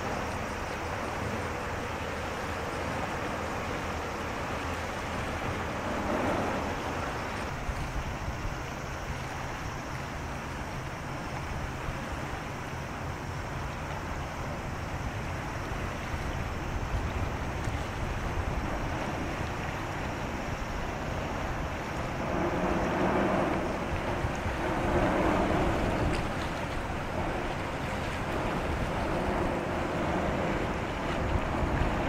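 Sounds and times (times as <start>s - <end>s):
outdoor wind noise: 0.0s - 32.0s
low rumble: 5.4s - 7.7s, 21.0s - 32.0s.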